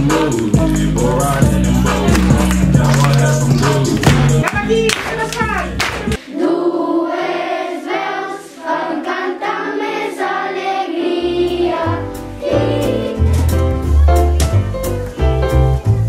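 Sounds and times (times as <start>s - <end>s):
low musical accompaniment: 0.0s - 6.2s, 10.9s - 16.0s
group singing long held notes: 6.2s - 13.3s.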